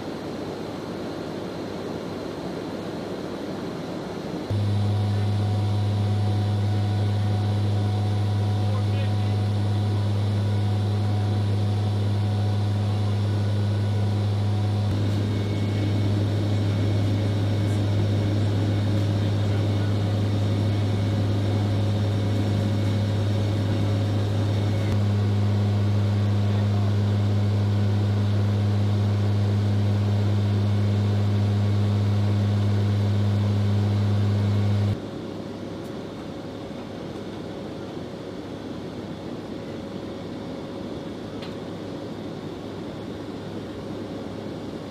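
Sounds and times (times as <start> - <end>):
turboprop drone in cabin: 0.0 - 35.0.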